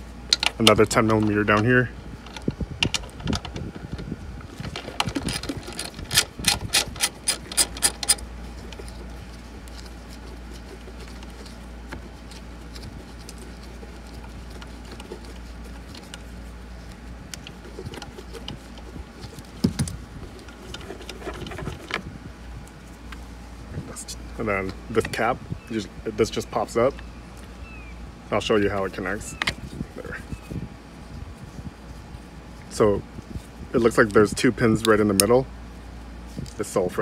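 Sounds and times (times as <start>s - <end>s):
faint handling noise: 0.0s - 37.0s
socket ratchet clicking: 5.0s - 8.2s.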